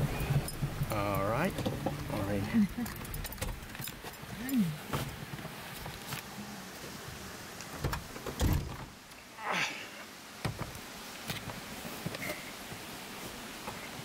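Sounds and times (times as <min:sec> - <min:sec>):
car door clunk: 0:07.8 - 0:08.9
car door creaking: 0:07.8 - 0:08.9.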